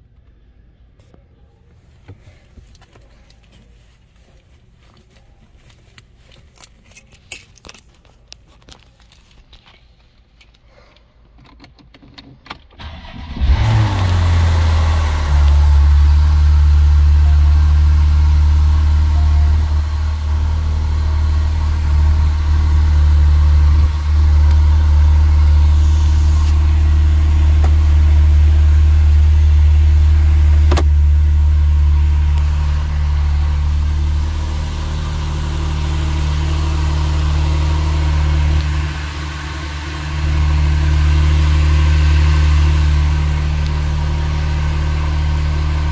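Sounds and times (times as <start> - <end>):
car engine starting and idling: 12.5 - 45.9.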